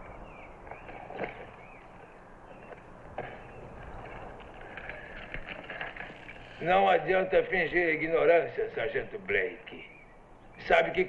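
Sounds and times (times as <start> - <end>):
faint bird chirps: 9.6 - 10.7.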